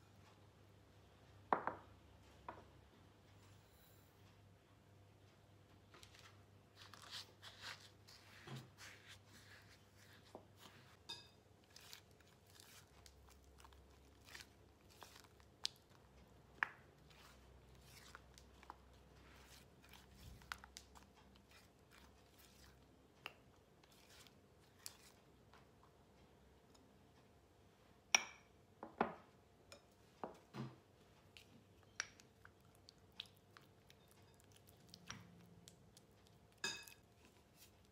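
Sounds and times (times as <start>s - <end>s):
spatula scraping bowl: 17.0s - 20.5s.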